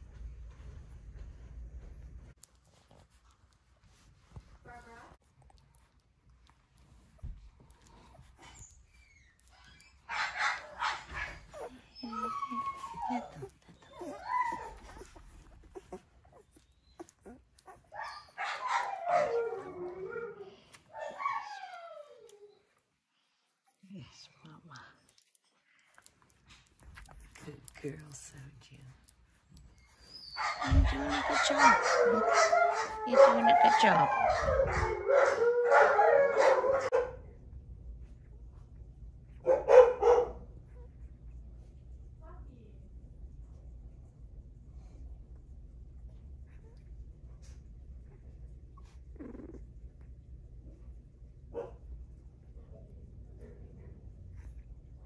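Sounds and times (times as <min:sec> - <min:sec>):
dog whining: 0:08.0 - 0:22.7, 0:29.7 - 0:36.9, 0:48.7 - 0:49.8
dog howling: 0:30.4 - 0:37.1.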